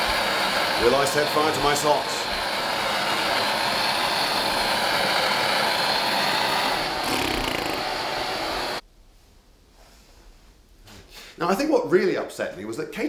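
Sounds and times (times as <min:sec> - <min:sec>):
blowtorch flame rushing: 0:00.0 - 0:08.8.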